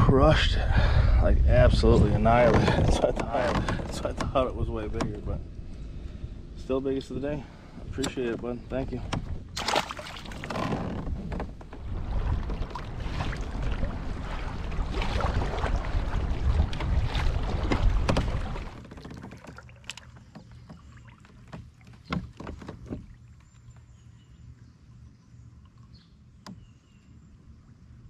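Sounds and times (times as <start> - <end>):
wind buffeting microphone: 0.0 - 18.9
choppy water: 0.0 - 28.0
light knocks and clicks: 2.4 - 5.4, 7.9 - 9.5, 17.7 - 23.9.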